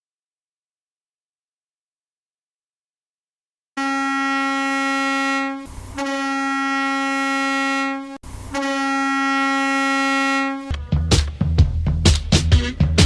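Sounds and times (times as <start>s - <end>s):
goal horn blasts: 3.8s - 10.7s.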